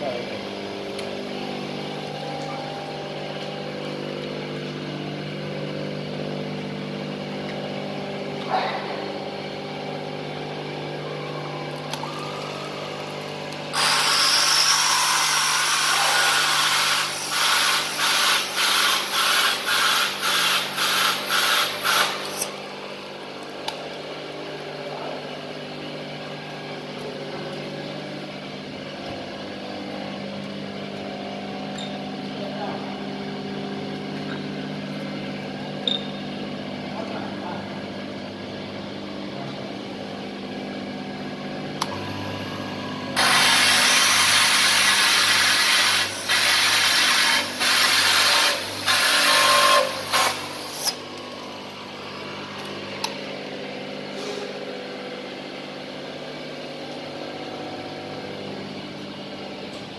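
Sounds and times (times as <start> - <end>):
electric motor humming: 11.0 - 22.7, 41.8 - 53.0
drill bit grinding into glass: 13.7 - 22.5, 43.2 - 51.0.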